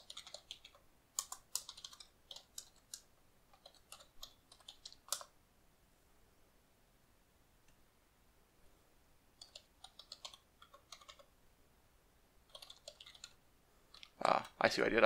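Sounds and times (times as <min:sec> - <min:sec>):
keyboard typing: 0:00.0 - 0:05.3, 0:09.4 - 0:11.3, 0:12.4 - 0:14.6.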